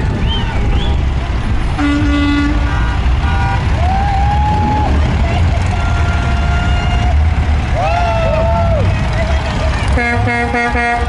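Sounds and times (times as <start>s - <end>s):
vehicle horns honking: 0.0s - 1.0s, 1.7s - 3.8s, 5.1s - 7.4s, 9.0s - 11.0s
traffic rumble: 0.0s - 11.0s.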